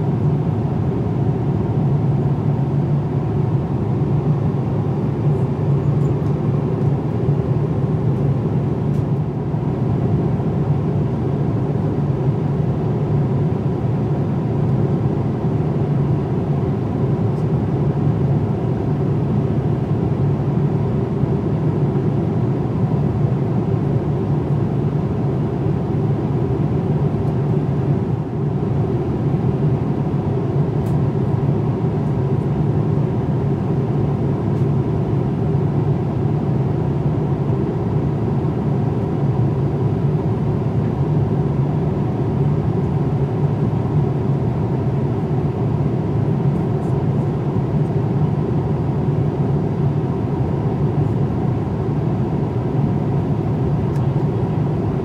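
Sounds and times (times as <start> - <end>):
airliner cabin engine noise: 0.0 - 55.0.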